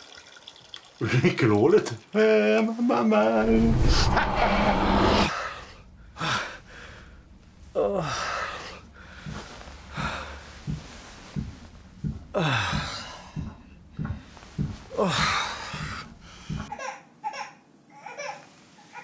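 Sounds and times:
rhythmic short grunts: 6.0s - 16.7s
breathy gasps: 12.3s - 14.3s.

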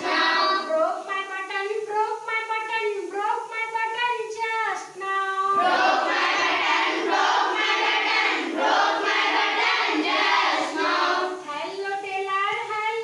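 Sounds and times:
children chanting in chorus: 0.0s - 0.7s, 5.6s - 11.5s.

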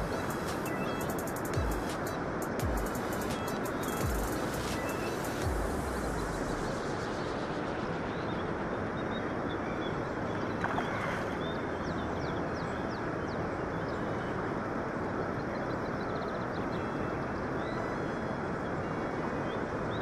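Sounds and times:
faint high bird chirps: 0.0s - 2.2s, 2.8s - 5.4s
rushing river noise: 0.0s - 15.7s.

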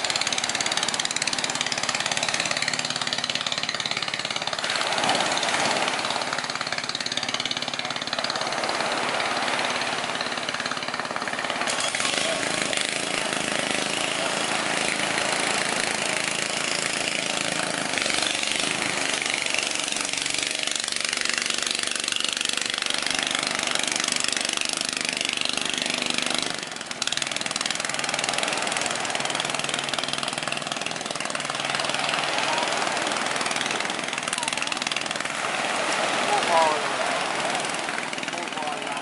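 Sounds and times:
motor running: 0.0s - 39.0s
waves breaking on beach: 0.0s - 39.0s.

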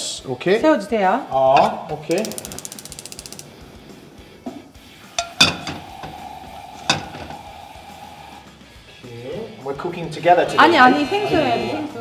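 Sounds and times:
frying pan clanking on grate: 1.5s - 3.4s, 5.2s - 6.2s, 6.9s - 7.4s
gas stove igniter ticking: 1.5s - 3.9s, 5.1s - 7.5s.

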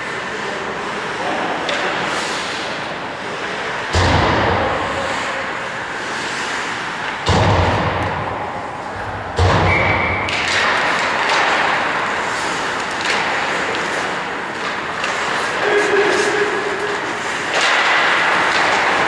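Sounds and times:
skates hissing on ice: 1.8s - 3.7s, 5.0s - 7.2s, 10.8s - 19.0s
loud thuds on rink boards: 3.9s - 5.4s, 7.1s - 19.0s.

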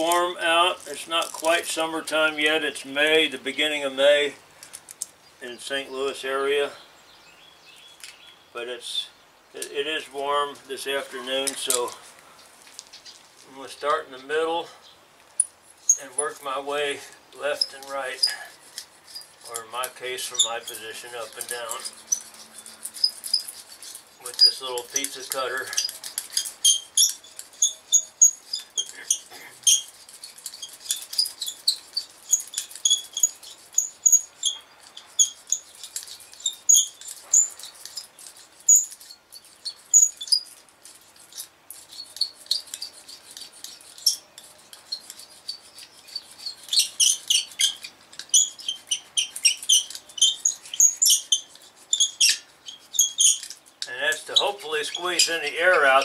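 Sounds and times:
patch stitcher squeaking and clicking: 17.5s - 56.0s.

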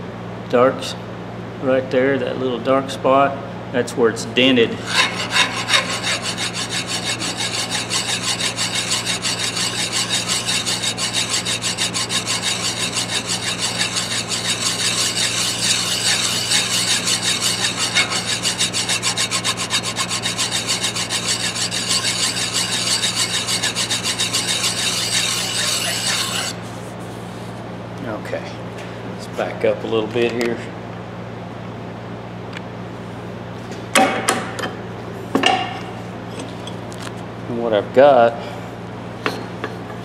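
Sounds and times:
hand file rasping on steel: 4.8s - 26.6s.

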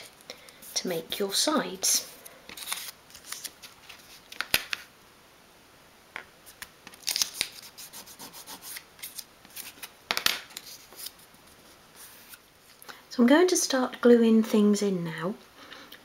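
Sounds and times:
paper crackling as folded: 2.0s - 4.9s, 6.5s - 7.9s.

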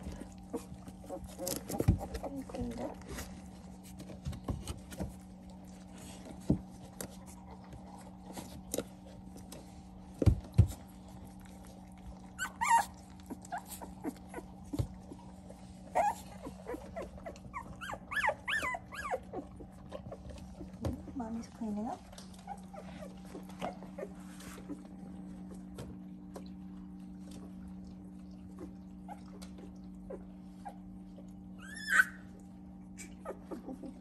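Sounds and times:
puppies whimpering and squeaking: 0.0s - 6.2s, 10.9s - 21.2s, 22.2s - 25.6s, 28.5s - 34.0s
steady low hum: 0.0s - 34.0s.

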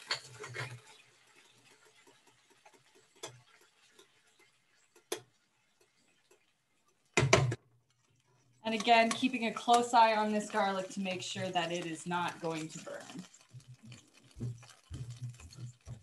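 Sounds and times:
pan clattering on coil burner: 0.0s - 1.0s, 8.7s - 13.2s
frying pan clicks: 8.7s - 10.5s.

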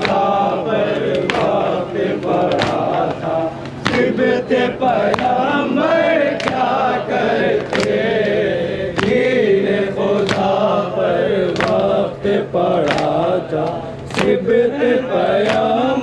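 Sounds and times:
hands slapping chests: 0.0s - 0.3s, 1.0s - 1.6s, 2.2s - 4.2s, 5.1s - 5.4s, 6.4s - 6.7s, 7.6s - 8.0s, 8.9s - 9.3s, 10.2s - 10.5s, 11.6s - 11.9s, 12.8s - 14.4s, 15.4s - 15.7s
men chanting in chorus: 0.0s - 16.0s.

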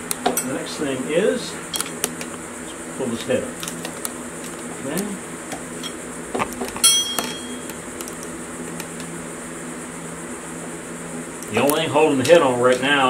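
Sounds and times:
steady low hum: 0.0s - 13.0s
metal tool clinking on iron: 6.8s - 7.6s.

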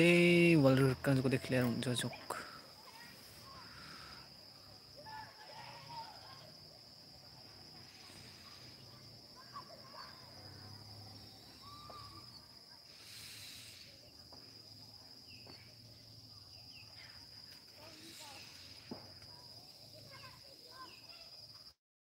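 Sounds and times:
faint chirps: 0.0s - 21.8s
insects trilling: 0.0s - 21.8s
brief hiss: 12.9s - 14.1s, 17.8s - 19.2s.

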